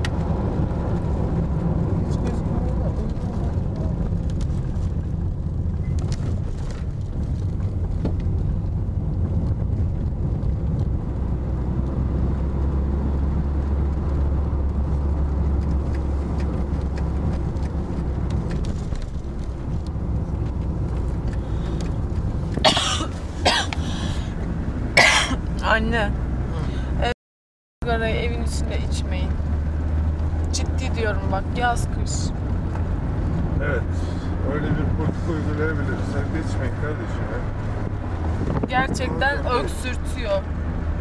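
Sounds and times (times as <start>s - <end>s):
car engine rumble: 0.0s - 27.2s, 27.8s - 41.0s
road noise inside car: 0.0s - 27.2s, 27.8s - 41.0s
person coughing: 22.6s - 23.9s, 25.0s - 25.4s.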